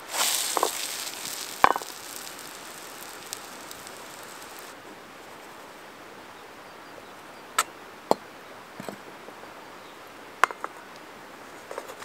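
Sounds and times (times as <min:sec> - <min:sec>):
wooden spoon stirring in a pan: 0:00.0 - 0:04.7
faint steady hiss: 0:00.0 - 0:12.0.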